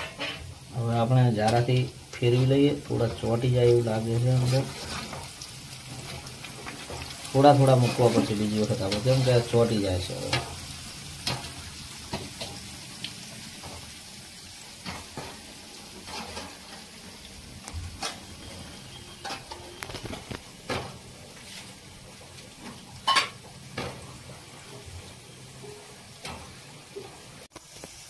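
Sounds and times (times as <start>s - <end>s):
fritters sizzling in hot oil: 0.0s - 28.0s.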